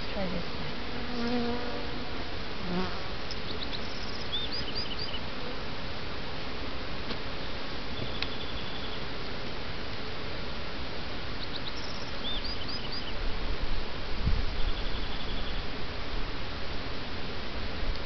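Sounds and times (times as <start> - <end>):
honeybees buzzing: 0.0 - 3.4
single bee droning past: 0.7 - 3.2.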